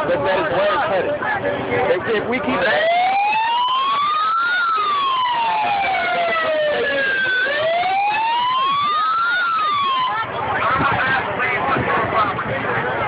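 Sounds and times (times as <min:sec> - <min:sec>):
police sirens wailing: 0:02.2 - 0:13.0.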